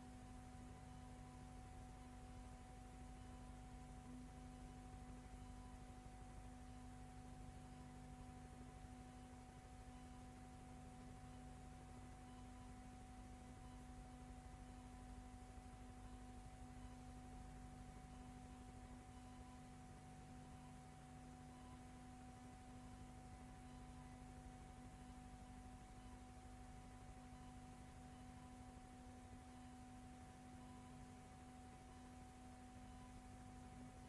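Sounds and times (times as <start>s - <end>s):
faint electrical hum: 0.0s - 34.0s.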